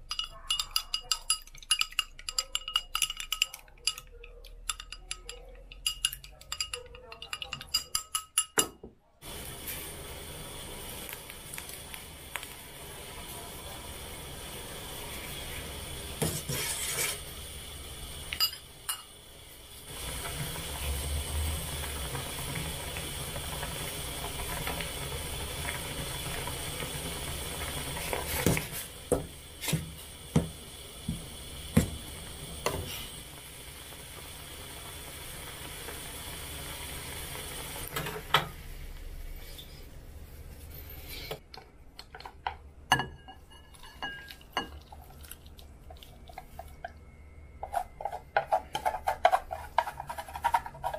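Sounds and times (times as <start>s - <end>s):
utensil clinking against pot: 0.0s - 8.8s, 18.3s - 19.1s, 42.2s - 44.8s
pot of noodles hissing: 9.2s - 38.0s.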